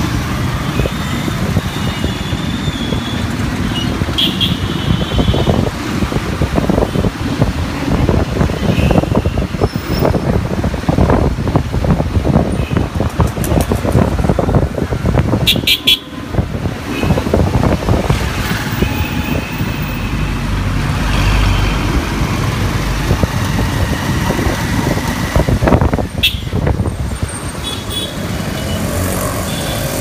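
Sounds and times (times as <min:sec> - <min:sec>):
wind rumble: 0:05.1 - 0:27.5.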